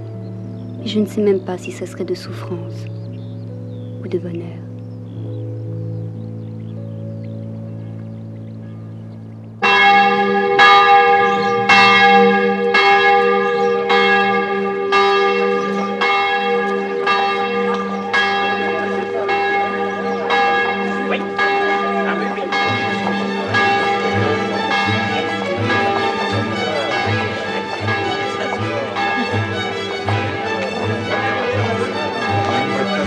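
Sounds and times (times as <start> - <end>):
soft low background music chord: 0.0 - 13.7
church bells ringing: 0.0 - 33.0.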